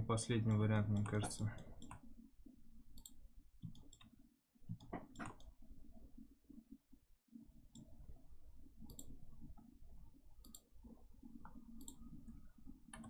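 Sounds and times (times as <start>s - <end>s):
low steady hum: 0.0s - 13.0s
computer mouse clicks: 0.5s - 2.1s, 2.9s - 5.6s, 8.8s - 9.7s, 10.4s - 13.0s.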